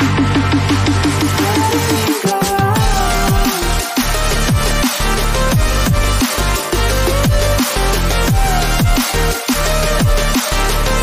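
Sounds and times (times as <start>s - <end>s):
drum and bass music: 0.0s - 11.0s.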